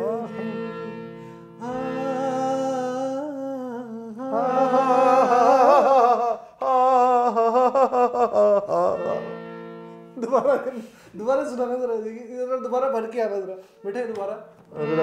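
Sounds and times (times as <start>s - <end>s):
harmonium drone: 0.0s - 2.8s, 4.4s - 5.9s, 8.5s - 10.7s, 13.8s - 15.0s
man singing held notes: 1.6s - 5.3s.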